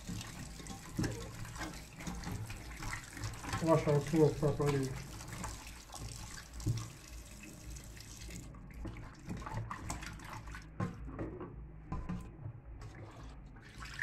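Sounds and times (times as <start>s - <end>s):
tap running into metal bowl: 0.1s - 7.0s.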